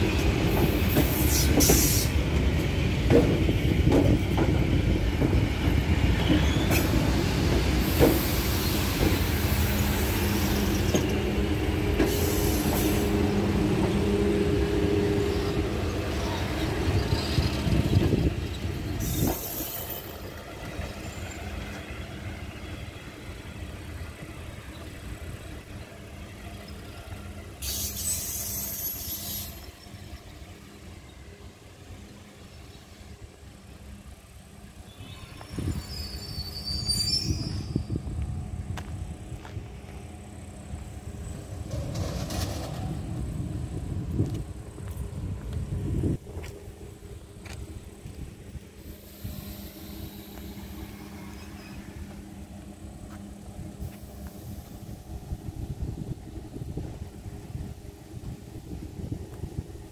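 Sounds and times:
electric train rumble and hum: 0.0 - 59.9
loud air hiss: 0.7 - 2.2, 6.7 - 10.9, 11.9 - 13.5, 27.6 - 29.7, 48.8 - 52.0.

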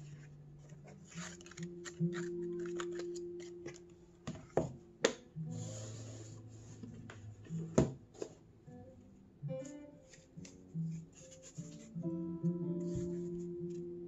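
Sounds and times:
paper rustling: 0.0 - 4.6, 9.6 - 12.0, 12.8 - 13.9
soft background music: 0.0 - 14.0
cardboard tray sliding: 5.5 - 6.9
cardboard knocking on tabletop: 7.7 - 8.3.

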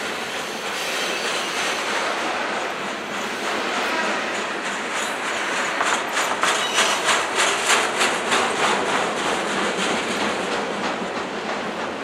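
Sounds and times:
railcars rolling rumble: 0.0 - 12.0
train wheels clacking over rail joints: 0.0 - 12.0.

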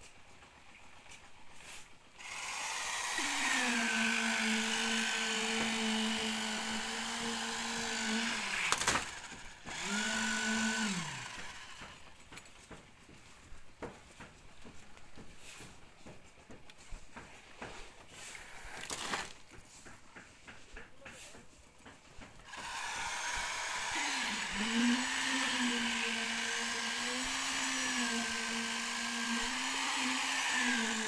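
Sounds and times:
power tool motor running: 2.2 - 12.3, 22.4 - 31.0.

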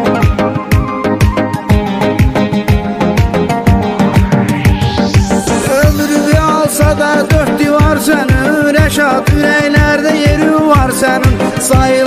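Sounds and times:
wavering lead melody: 0.0 - 7.3
instrumental music with kick drum: 0.0 - 12.0.

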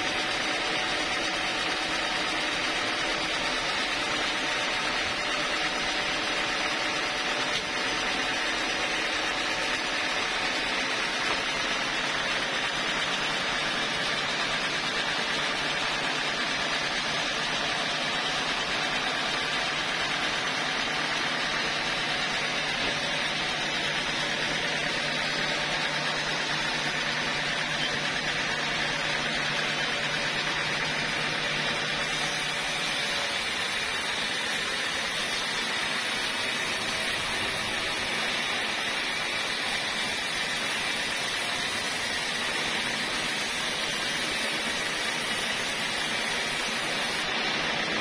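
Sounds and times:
band saw running: 0.0 - 48.0.

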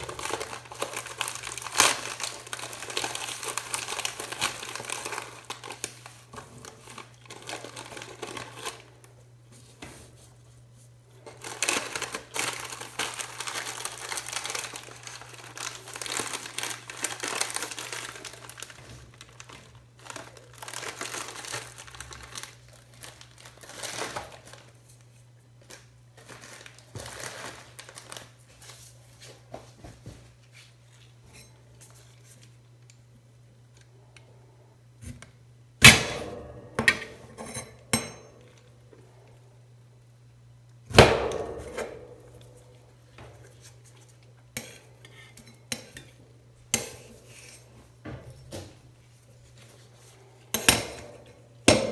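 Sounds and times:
plastic wrapper crinkling: 0.0 - 9.2, 11.2 - 29.3.

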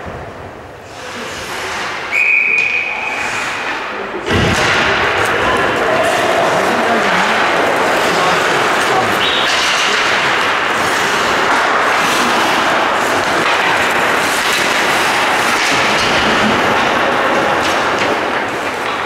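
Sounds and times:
hockey rink crowd din: 0.0 - 19.0.

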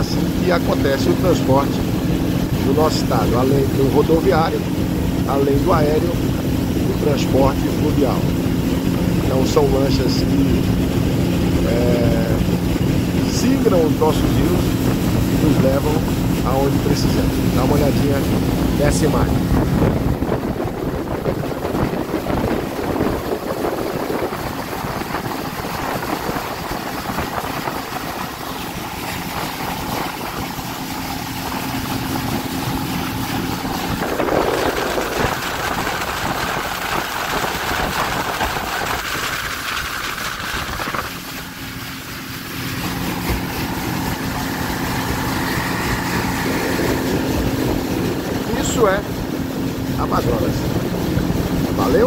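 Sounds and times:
speedboat engine running: 0.0 - 52.0
water rushing past hull: 0.0 - 52.0.

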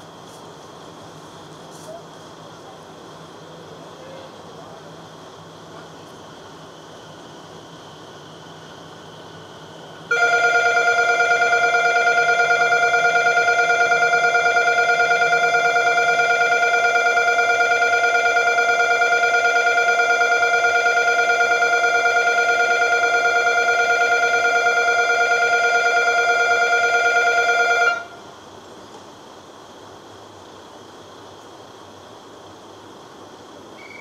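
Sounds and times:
electric departure bell ringing: 10.1 - 28.1.

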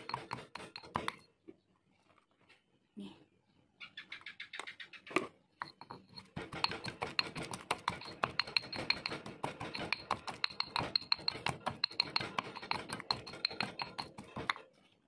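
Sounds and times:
stone pestle pounding in mortar: 0.0 - 1.2, 5.6 - 14.6.

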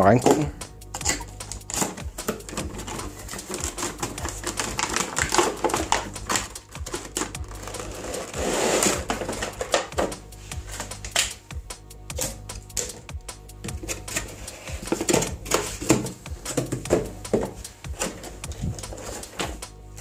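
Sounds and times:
plastic rustle: 1.6 - 11.2, 13.9 - 20.0.

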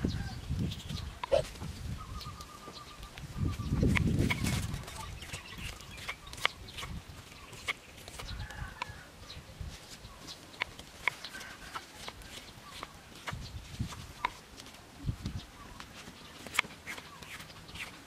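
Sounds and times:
chickens clucking: 1.0 - 1.7.

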